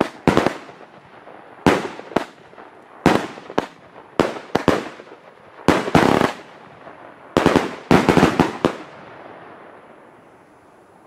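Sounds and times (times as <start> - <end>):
echo of firework bursts: 0.0 - 10.9.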